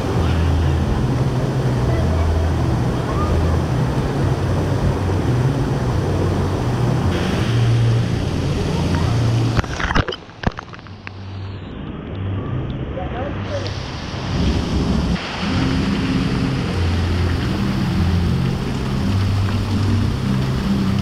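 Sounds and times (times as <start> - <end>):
rushing splashing water: 0.0 - 12.0, 13.3 - 21.0.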